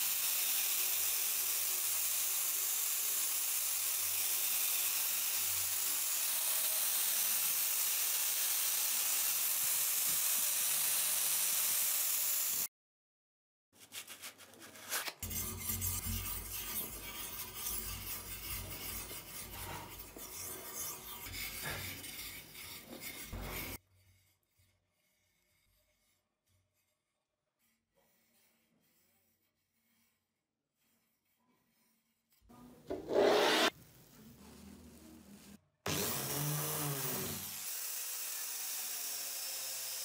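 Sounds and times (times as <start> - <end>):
angle grinder sanding steel: 0.0 - 12.7, 15.2 - 23.8, 32.9 - 33.8, 35.9 - 40.0
rubbing and scraping handling noise: 13.8 - 24.4, 27.6 - 34.9.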